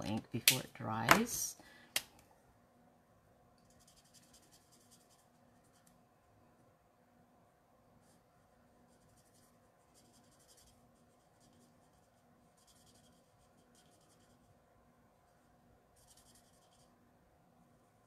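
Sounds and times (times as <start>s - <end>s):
faint steady hum: 0.0s - 18.0s
marker scratching on cardstock: 3.7s - 5.9s, 8.8s - 14.6s, 16.0s - 17.0s.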